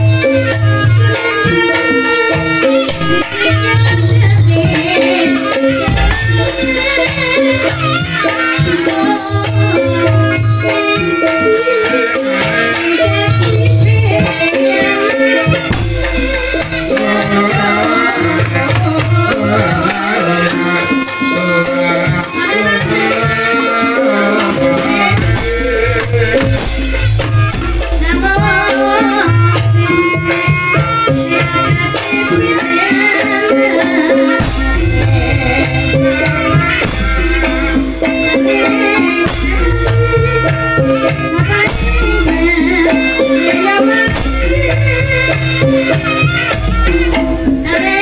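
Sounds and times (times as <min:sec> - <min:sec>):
drumming: 0:00.0 - 0:48.0
rattling percussion: 0:00.0 - 0:48.0
metallophones playing melody: 0:15.4 - 0:48.0.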